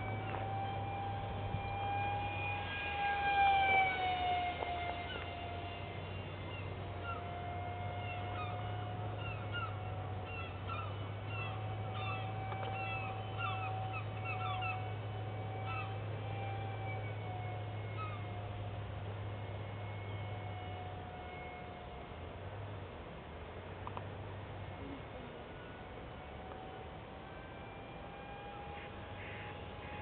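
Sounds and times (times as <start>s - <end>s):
birds chirping: 0.0s - 18.7s
electric jet fan whining: 0.0s - 30.0s.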